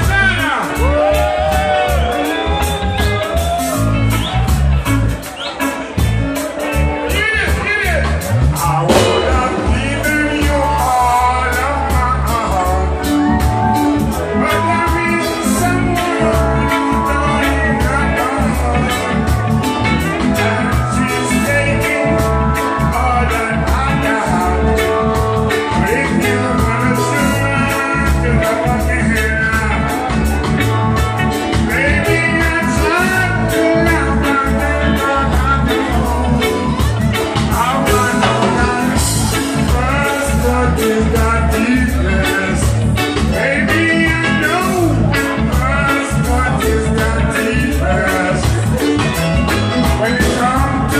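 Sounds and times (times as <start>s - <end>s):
electric bass: 0.0s - 50.9s
electric guitar: 0.0s - 50.9s
man singing into a microphone: 6.5s - 50.9s
steady drum beat: 7.5s - 21.1s, 25.2s - 50.9s
steady beat: 8.5s - 14.3s.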